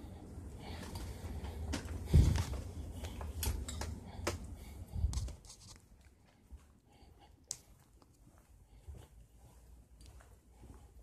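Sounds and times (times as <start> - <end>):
tools and hoses rustling: 0.6 - 5.9.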